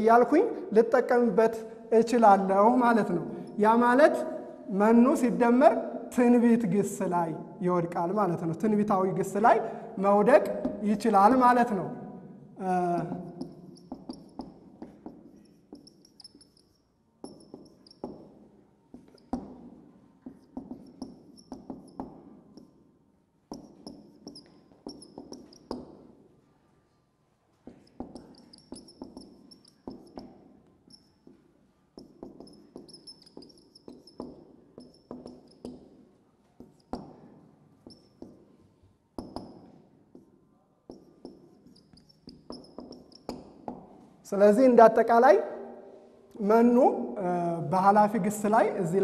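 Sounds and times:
marker squeaking on whiteboard: 0:12.8 - 0:44.2.

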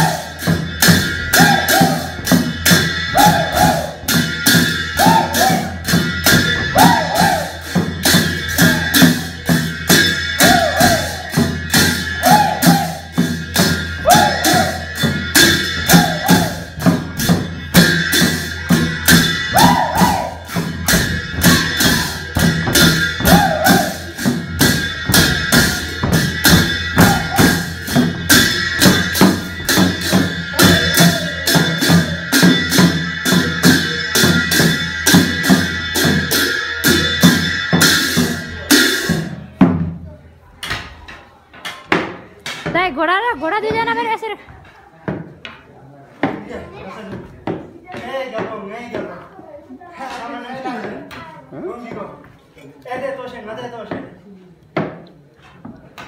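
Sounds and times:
folk dance music: 0:00.0 - 0:38.7.

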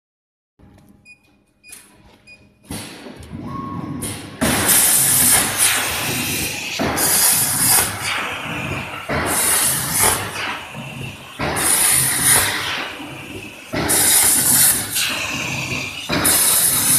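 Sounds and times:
short beeps: 0:03.4 - 0:04.0
plasma cutter air hiss: 0:04.0 - 0:16.9.

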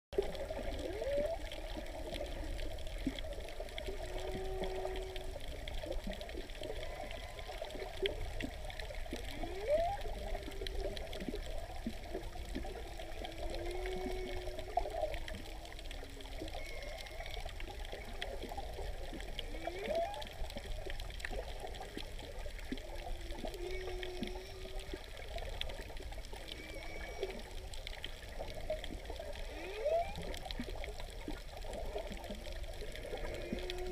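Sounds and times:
whale song whoops and moans: 0:00.2 - 0:03.2, 0:03.8 - 0:20.8, 0:21.6 - 0:30.5, 0:32.8 - 0:33.9
higher whale cries: 0:00.6 - 0:02.6, 0:03.8 - 0:05.6, 0:06.6 - 0:08.1, 0:09.2 - 0:11.0, 0:12.6 - 0:15.4, 0:16.3 - 0:18.1, 0:19.4 - 0:20.4, 0:23.2 - 0:25.3, 0:26.4 - 0:27.7, 0:29.4 - 0:30.4, 0:32.9 - 0:33.9.

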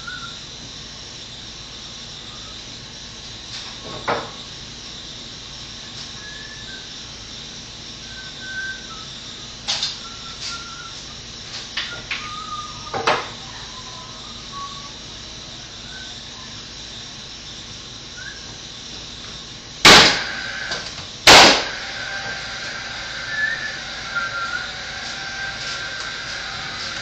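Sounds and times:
nail gun firing into wood: 0:19.8 - 0:21.8.

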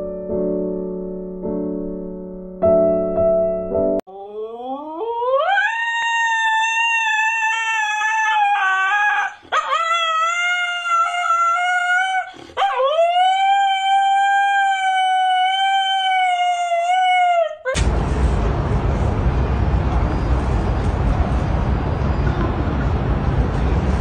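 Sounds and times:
dog howling: 0:04.2 - 0:17.8
dog breathing: 0:12.2 - 0:12.6
outdoor street noise: 0:17.8 - 0:24.0.

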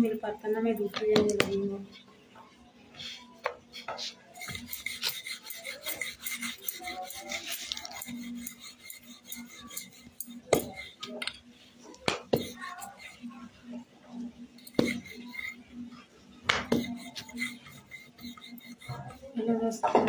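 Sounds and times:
hands rubbing and scraping: 0:03.0 - 0:11.4, 0:12.1 - 0:13.4, 0:14.6 - 0:19.3.

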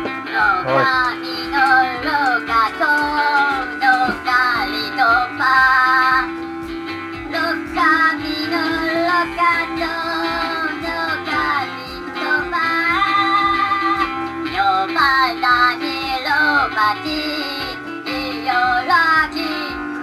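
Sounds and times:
guitar backing from toy speaker: 0:00.0 - 0:20.0
high-pitched toy voice singing: 0:00.3 - 0:06.2.

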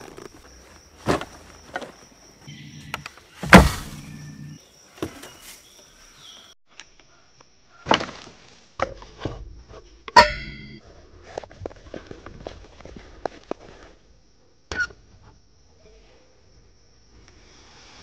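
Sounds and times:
camping gear knocking on wood: 0:03.4 - 0:04.0.

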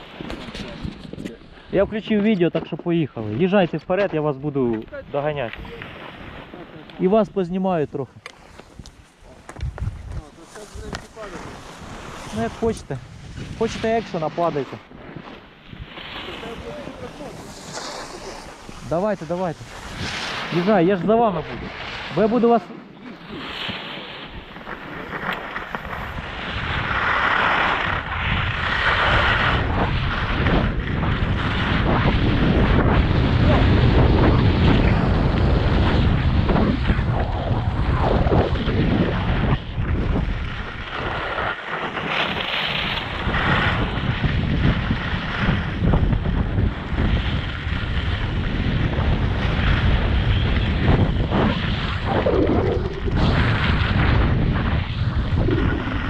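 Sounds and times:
wind buffeting microphone: 0:00.0 - 0:23.6, 0:24.2 - 0:56.0.

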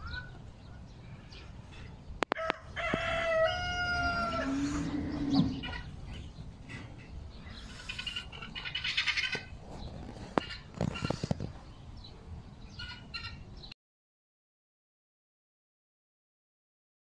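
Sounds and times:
rooster crowing: 0:02.3 - 0:05.8
rapid clucking calls: 0:04.2 - 0:11.6.

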